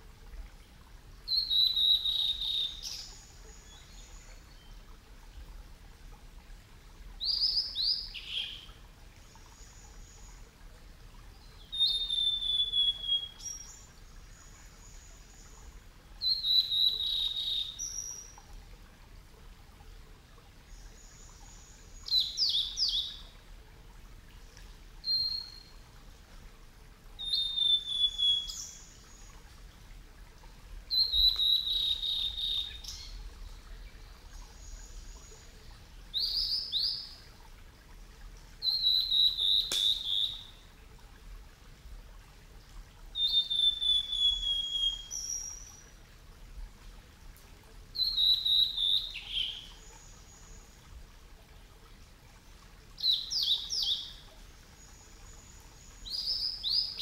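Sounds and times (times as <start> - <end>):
bird whistling song with trills: 1.3 - 3.1, 11.7 - 13.6, 16.2 - 18.2, 25.0 - 25.7, 27.2 - 28.8, 30.9 - 33.1, 38.6 - 40.5, 43.2 - 45.7, 48.0 - 49.7.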